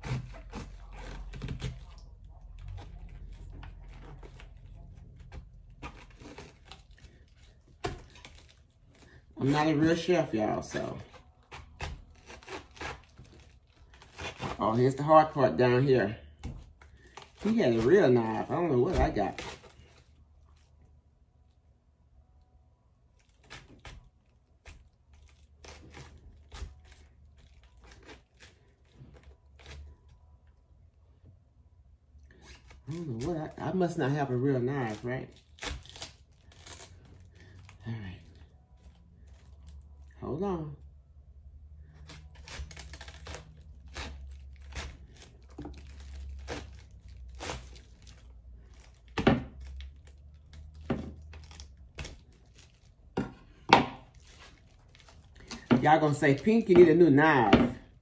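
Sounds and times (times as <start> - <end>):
knife sawing through cabbage: 0.0 - 16.1, 16.9 - 20.0
knife crunching through cabbage: 0.0 - 20.8, 23.2 - 30.4, 32.2 - 40.0, 41.8 - 58.0.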